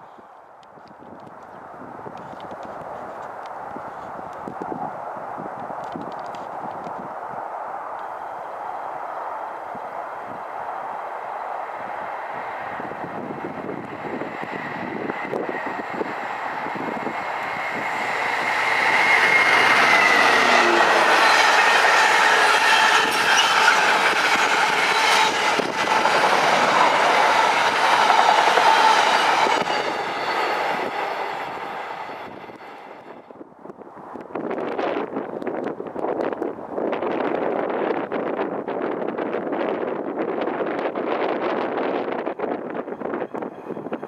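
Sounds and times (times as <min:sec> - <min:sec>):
diesel locomotive engine: 0:08.0 - 0:33.3
train wagons rolling on rails: 0:11.6 - 0:33.3.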